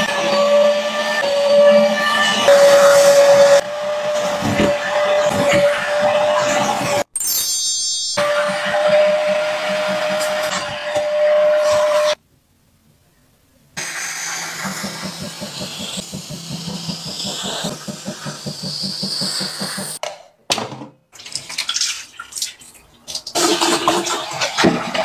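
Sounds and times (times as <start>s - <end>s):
fabric cleaner motor pulsing: 0.0s - 7.0s, 8.2s - 12.2s, 13.8s - 20.0s
water splashing: 21.2s - 25.0s.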